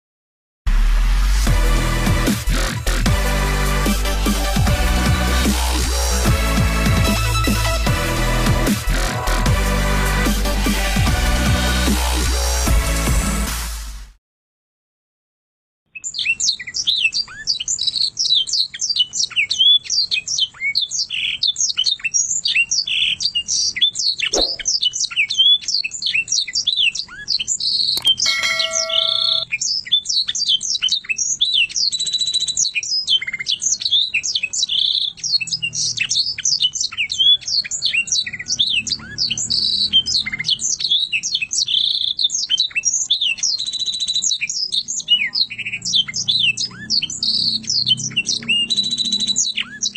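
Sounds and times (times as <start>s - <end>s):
canary singing: 15.9s - 49.9s.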